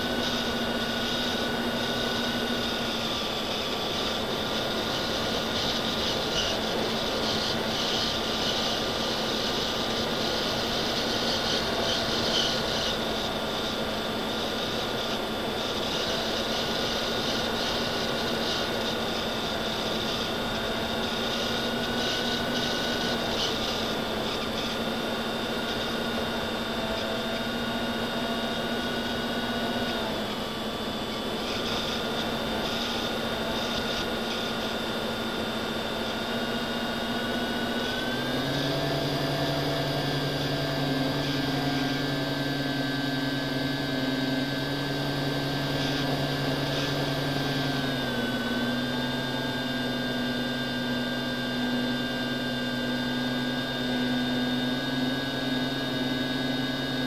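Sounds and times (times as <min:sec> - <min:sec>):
model aircraft motor whine: 0:00.0 - 0:57.0.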